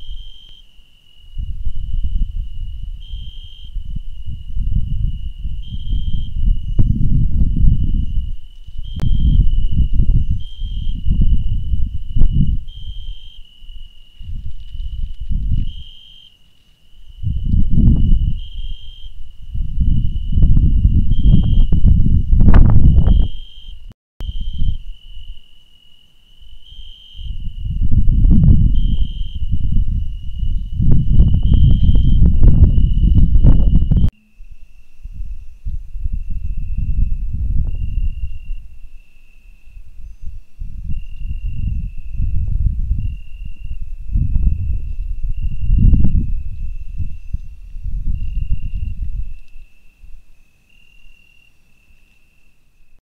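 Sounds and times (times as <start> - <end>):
high insect trilling: 0.0 - 52.5
gusty low rumbling: 1.3 - 13.2, 14.2 - 15.9, 17.1 - 23.4, 27.2 - 34.1, 35.0 - 39.0, 39.7 - 50.2.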